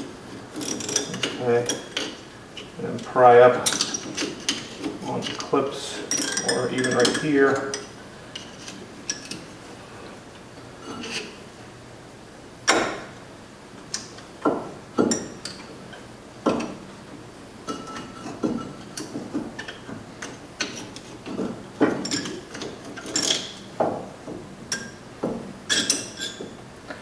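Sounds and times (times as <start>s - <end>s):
metal clicks and clinks: 6.1s - 9.4s.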